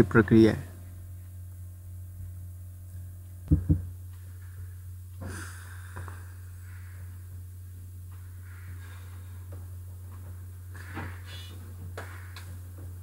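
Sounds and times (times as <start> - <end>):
steady low hum: 0.0 - 13.0
short double bump: 3.5 - 3.9
person breathing: 5.2 - 7.2.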